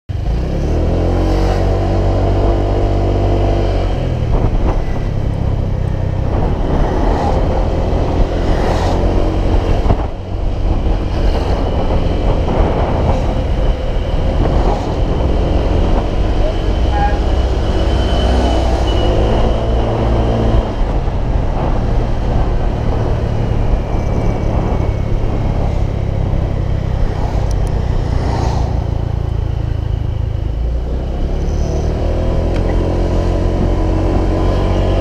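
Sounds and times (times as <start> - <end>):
wind noise on microphone: 0.1 - 35.0.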